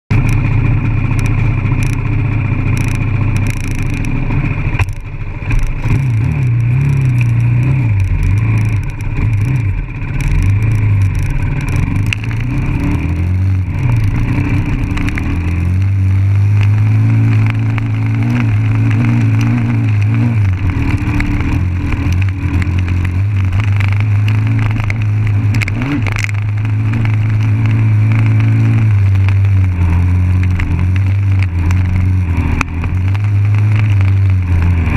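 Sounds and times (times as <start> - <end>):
dirt bike engine revving: 0.1 - 34.9.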